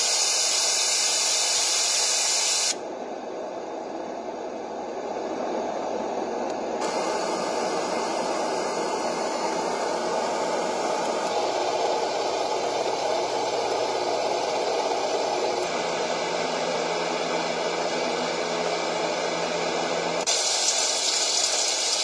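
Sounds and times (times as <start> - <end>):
white noise machine: 0.0 - 22.0.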